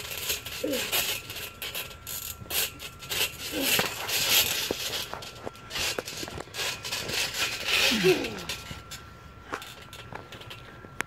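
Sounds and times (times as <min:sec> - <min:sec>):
short voice sounds: 0:07.8 - 0:08.5.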